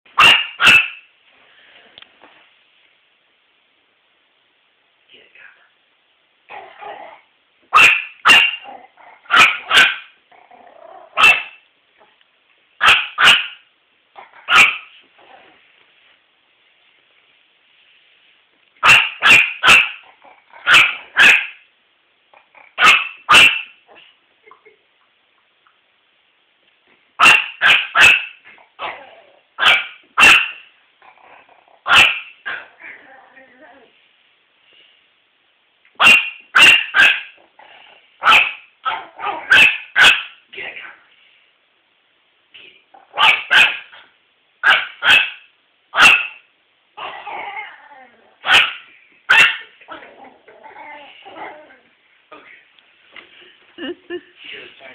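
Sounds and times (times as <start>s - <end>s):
dog barking: 0.2s - 1.0s, 7.7s - 8.7s, 9.3s - 10.2s, 11.1s - 11.6s, 12.8s - 13.6s, 14.4s - 15.0s, 18.8s - 20.0s, 20.6s - 21.6s, 22.8s - 24.1s, 27.2s - 29.0s, 29.6s - 30.6s, 31.8s - 32.7s, 36.0s - 37.4s, 38.2s - 40.4s, 43.1s - 44.0s, 44.6s - 46.4s, 48.4s - 49.8s.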